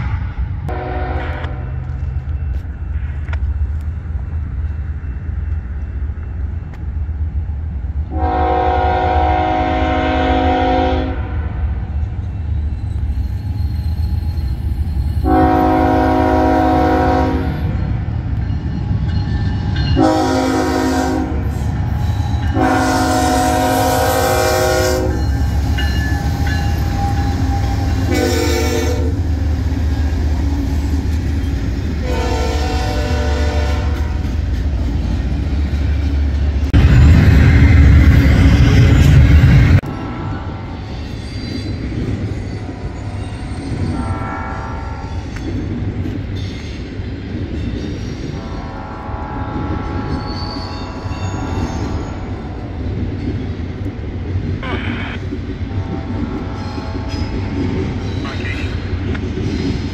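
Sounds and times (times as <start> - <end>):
low train rumble: 0.0 - 59.9
locomotive air horn blasts: 0.7 - 1.6, 8.1 - 11.4, 15.2 - 17.6, 20.0 - 21.5, 22.5 - 25.2, 28.0 - 29.2, 32.0 - 34.3, 48.4 - 50.2.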